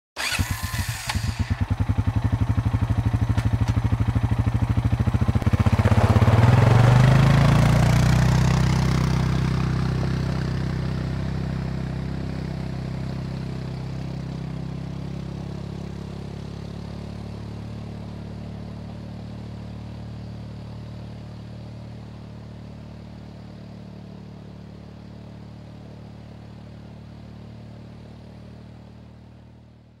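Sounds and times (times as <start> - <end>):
atv engine idling and revving: 0.2 - 30.0.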